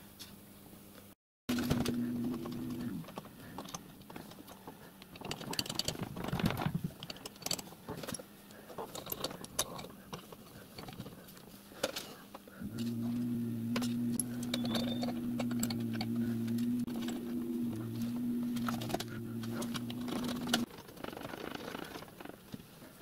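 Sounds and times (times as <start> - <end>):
steady low hum: 1.5 - 5.2, 12.4 - 20.7
metal parts clicking and clinking: 1.5 - 11.2, 12.9 - 20.7.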